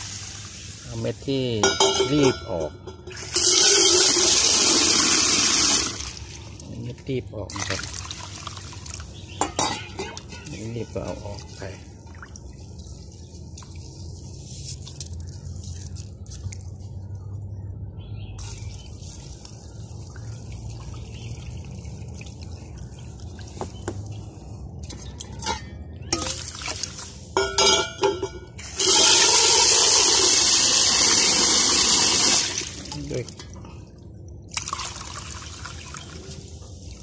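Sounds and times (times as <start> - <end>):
water pouring into bowl: 3.1 - 6.7, 7.5 - 9.2, 28.6 - 33.6, 34.5 - 36.6
water splashing: 5.3 - 15.2.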